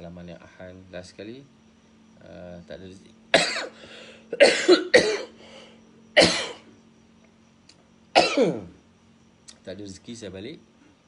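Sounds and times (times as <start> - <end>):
man coughing: 3.3 - 5.4, 6.2 - 6.7, 8.2 - 8.7.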